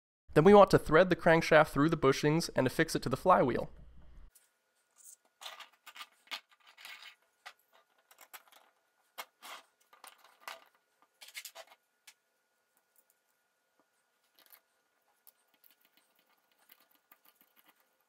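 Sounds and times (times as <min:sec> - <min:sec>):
plastic parts clicking and scraping: 0:05.0 - 0:12.2, 0:14.2 - 0:18.0.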